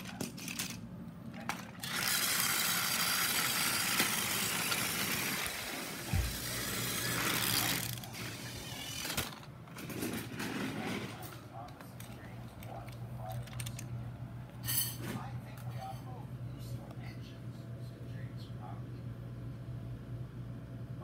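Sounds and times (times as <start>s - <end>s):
toy train motor whirring: 0.1s - 0.8s, 1.5s - 11.1s.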